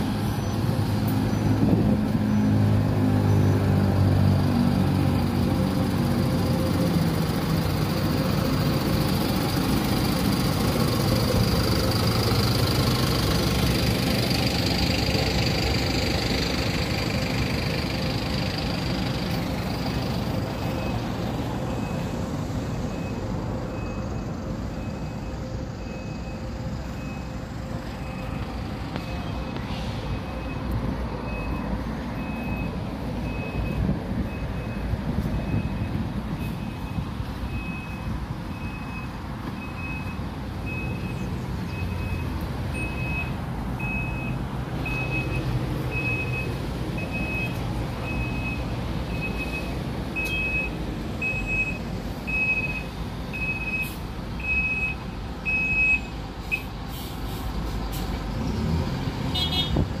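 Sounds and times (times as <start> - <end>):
buses idling: 0.0 - 60.0
vehicle warning beeper: 20.5 - 56.7.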